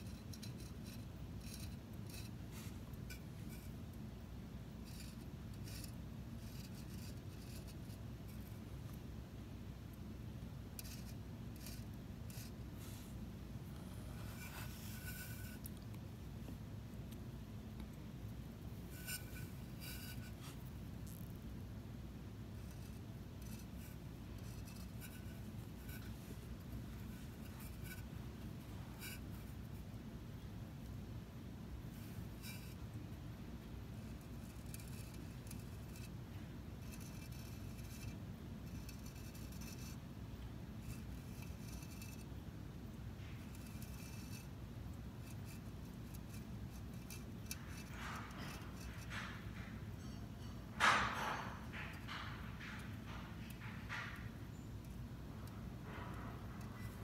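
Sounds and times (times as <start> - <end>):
bottle tip scratching on ceramic: 0.0 - 3.9, 4.8 - 8.6, 10.7 - 13.1, 14.0 - 16.0, 18.8 - 21.4, 22.5 - 29.9, 31.9 - 33.0, 33.9 - 36.2, 36.8 - 40.0, 40.8 - 42.3, 43.2 - 44.6, 45.2 - 57.0
steady low hum: 0.0 - 57.0.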